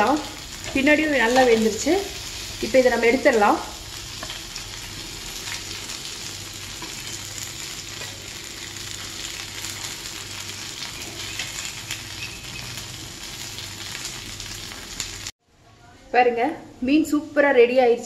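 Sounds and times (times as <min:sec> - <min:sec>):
fish sizzling on a griddle: 0:00.0 - 0:15.3.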